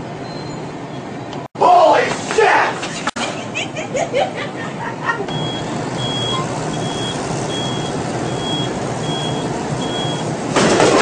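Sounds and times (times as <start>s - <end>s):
steady hum: 1.6s - 10.6s
reversing beeper: 5.3s - 10.3s.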